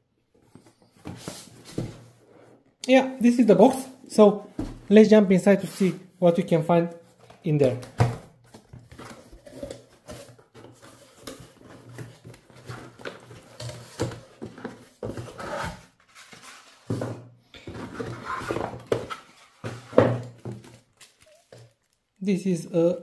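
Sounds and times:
cardboard box rustling and scraping: 8.7 - 20.7.

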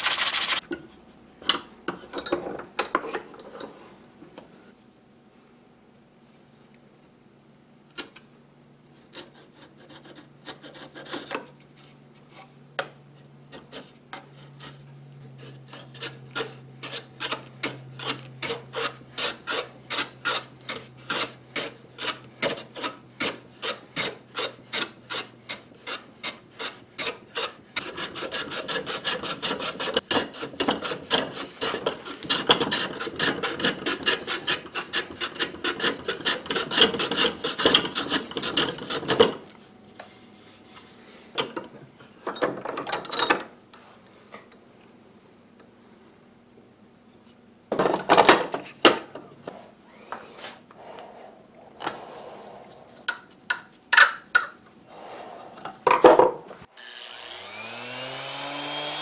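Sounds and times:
hand tool scraping wood: 0.0 - 0.6, 9.0 - 12.6, 13.4 - 41.3, 50.4 - 53.8.

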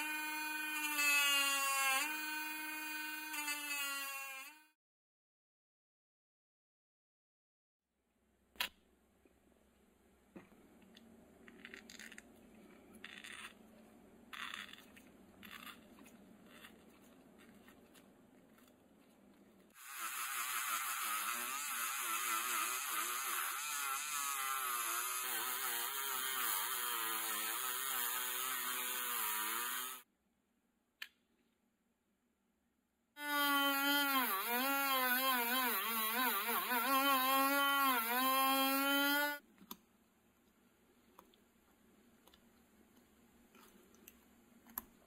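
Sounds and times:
rotary tool grinding screw: 13.0 - 13.6, 14.4 - 15.9, 19.7 - 30.0, 33.3 - 39.4.

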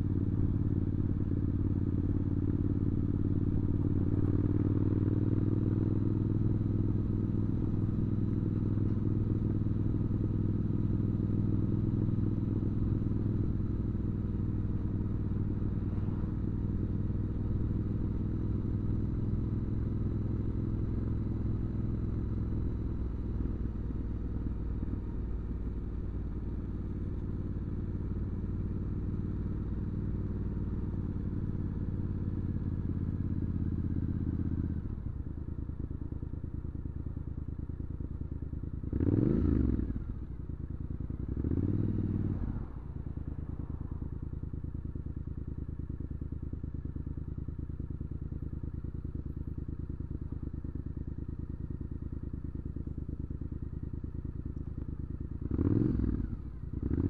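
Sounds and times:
motorcycle cruising exhaust note: 0.0 - 57.0.

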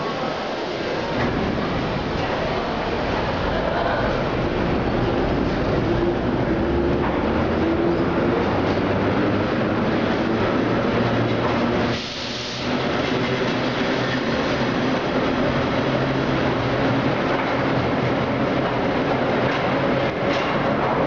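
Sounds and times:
subway train rumbling past: 0.0 - 21.0
hiss: 11.8 - 13.0.

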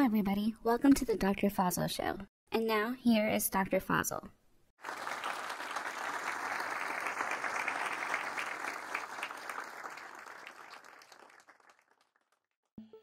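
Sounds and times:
audience applauding: 4.8 - 12.6.

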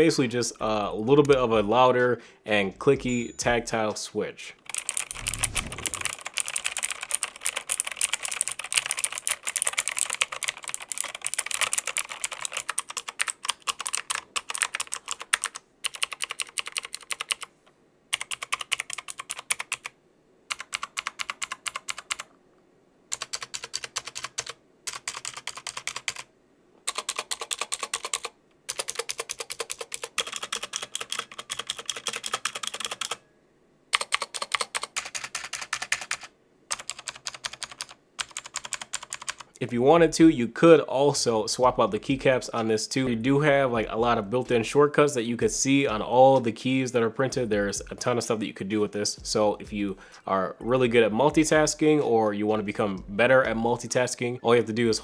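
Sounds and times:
mechanical keyboard key clicks: 26.9 - 33.2.

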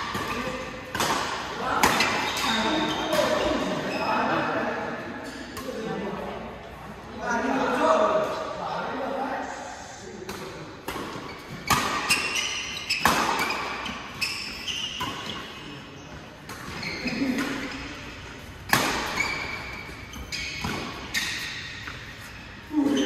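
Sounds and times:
rackets smacking shuttlecock: 0.0 - 3.6, 10.3 - 15.5, 18.4 - 22.4
court shoes squeaking: 0.0 - 4.6, 10.3 - 23.0.

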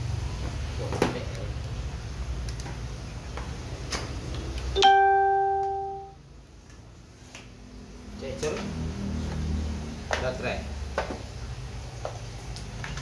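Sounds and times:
loud ringing note: 4.8 - 6.2.

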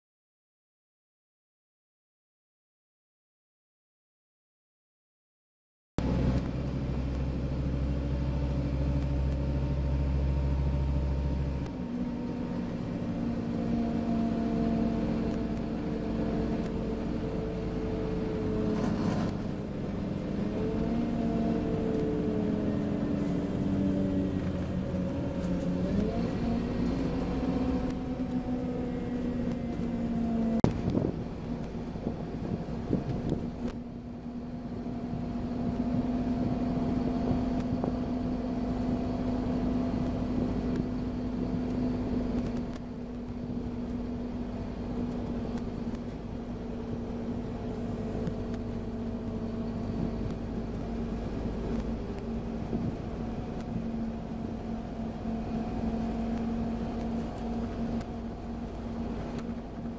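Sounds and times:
bus engine droning: 6.0 - 59.9.

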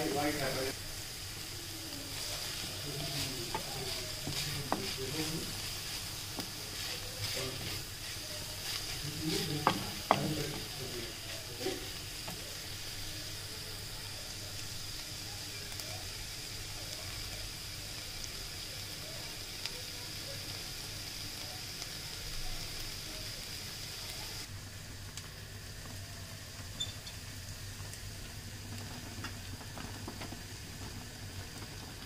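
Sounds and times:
vegetables sizzling in a pan: 0.0 - 32.0
spatula scraping a pan: 2.0 - 12.6
spatula knocking on pan: 9.4 - 10.7.

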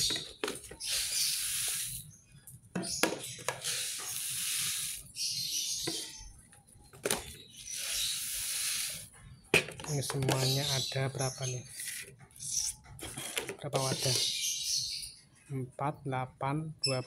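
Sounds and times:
birdseed pouring into plastic bowls: 0.0 - 2.0, 3.6 - 5.0, 7.2 - 9.1.

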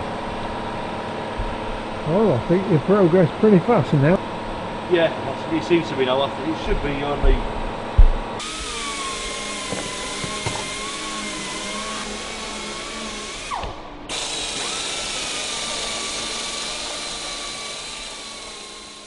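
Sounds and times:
power tool motor whining: 8.0 - 19.0.

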